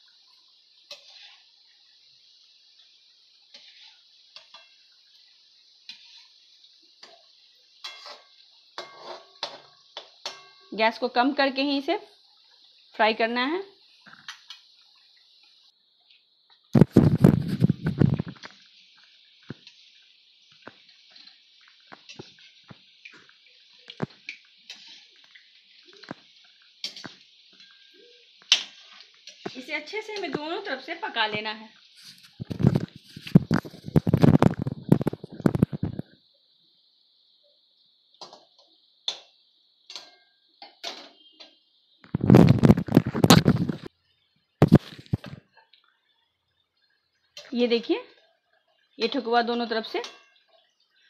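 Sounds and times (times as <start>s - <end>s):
faint sizzle of deep-frying: 0.0s - 51.0s
steel spoon clinking on pan: 7.8s - 10.7s, 50.0s - 50.4s.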